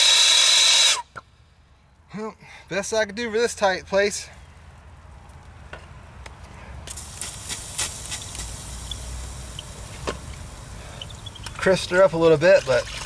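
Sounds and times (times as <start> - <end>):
hot metal joint sizzling and crackling: 6.8 - 13.0.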